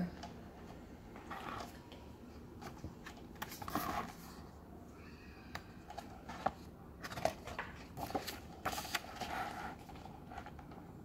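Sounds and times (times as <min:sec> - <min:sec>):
book page turning: 0:01.1 - 0:02.0, 0:02.6 - 0:04.4, 0:05.5 - 0:10.7.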